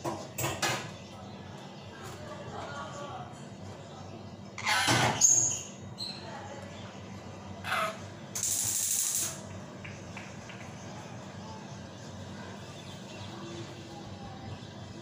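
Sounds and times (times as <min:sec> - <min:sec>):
parakeet squawk: 0:04.6 - 0:05.7, 0:07.6 - 0:08.0.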